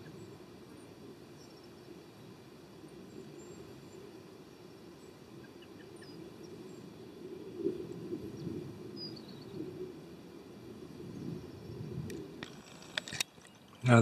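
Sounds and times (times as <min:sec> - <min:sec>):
faint bird chirps: 0:00.0 - 0:07.6.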